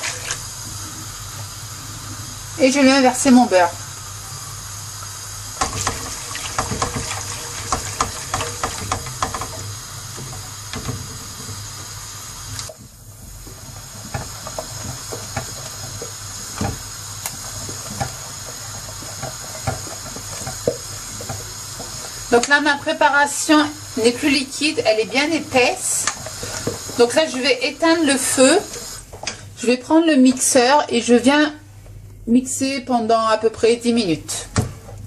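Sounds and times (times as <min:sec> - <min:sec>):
whisk scraping a saucepan: 0:05.7 - 0:10.3, 0:13.4 - 0:16.8, 0:17.4 - 0:22.4.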